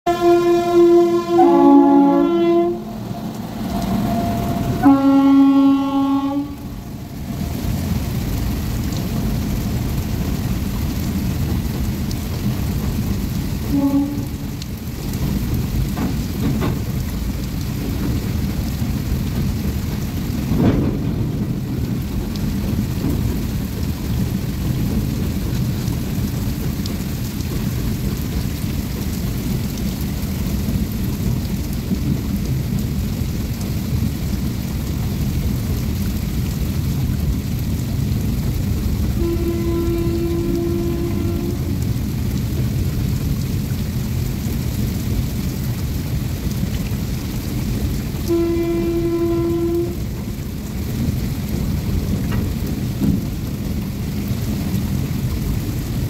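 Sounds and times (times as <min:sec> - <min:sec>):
train horn: 0:00.1 - 0:07.7, 0:13.6 - 0:14.7, 0:39.0 - 0:42.0, 0:48.2 - 0:50.4
heavy rain hissing: 0:00.1 - 0:56.0
train wagons rumbling: 0:00.1 - 0:56.0.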